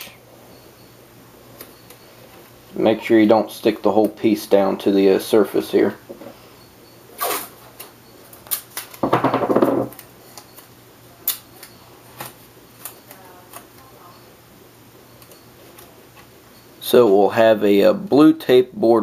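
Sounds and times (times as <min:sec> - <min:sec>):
tape ripped off roll: 0:07.2 - 0:07.5.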